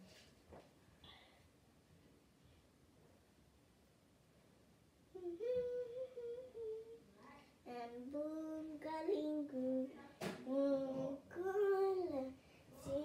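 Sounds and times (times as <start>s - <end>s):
girl humming and singing: 5.1s - 9.9s.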